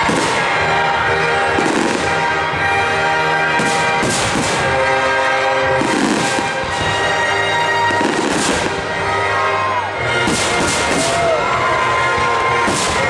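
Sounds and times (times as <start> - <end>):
fireworks bursting: 0.0 - 2.5, 3.5 - 9.2, 10.1 - 11.4, 12.5 - 13.0
music with sustained chords: 0.0 - 13.0.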